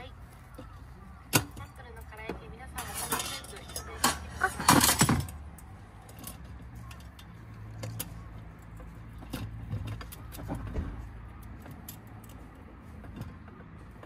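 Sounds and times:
metal lantern parts clinking: 0.5s - 10.8s.

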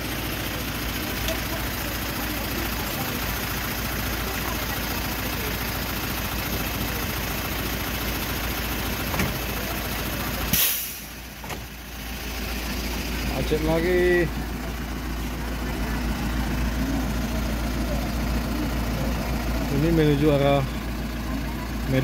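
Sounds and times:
truck and bus engines idling: 0.0s - 22.0s
loud air hiss: 10.5s - 11.2s.

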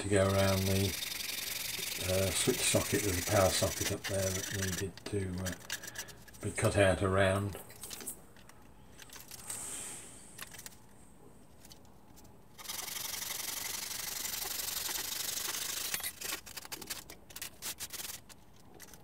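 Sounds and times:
hand sanding plywood: 1.8s - 4.9s.

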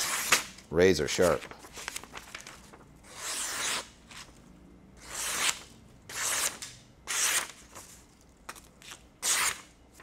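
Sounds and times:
knife slicing paper: 9.2s - 9.7s.

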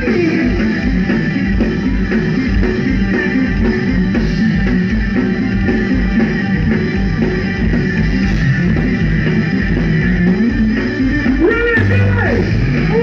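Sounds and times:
heavy rock band playing live: 0.0s - 13.0s.

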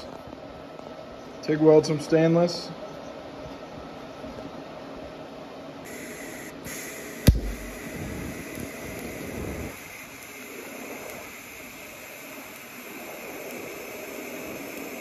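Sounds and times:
welding arc hissing: 5.9s - 15.0s
sharp crack of arc striking: 7.2s - 8.2s.

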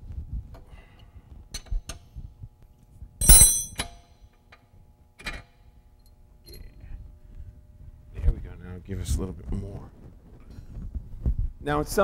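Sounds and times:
metal tools clinking: 3.2s - 4.0s.

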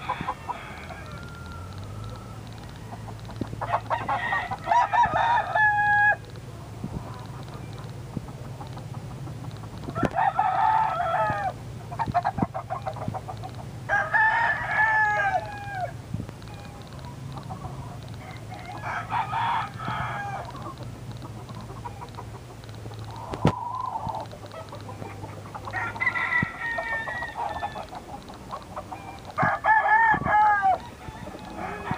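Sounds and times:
rapid clucks: 0.0s - 5.2s, 6.2s - 10.4s, 11.8s - 13.8s, 16.3s - 29.5s, 30.2s - 31.9s
low steady hum: 0.0s - 31.9s
roosters crowing: 0.0s - 31.9s.

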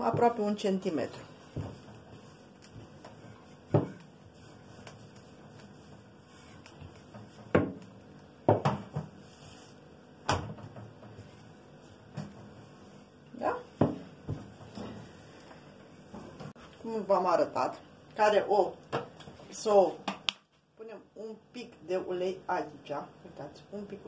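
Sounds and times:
rolling pin working dough: 0.0s - 17.3s
rolling pin knocking tabletop: 1.5s - 4.1s, 6.8s - 9.2s, 13.8s - 14.8s.

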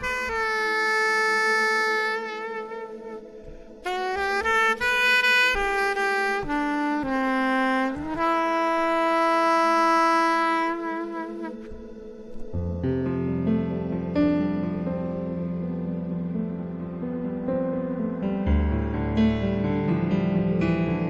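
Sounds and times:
soprano saxophone melody: 0.0s - 12.5s.

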